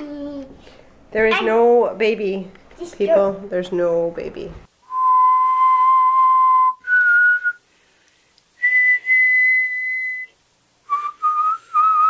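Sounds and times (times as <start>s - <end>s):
person whistling long notes: 4.9s - 7.6s, 8.6s - 12.0s.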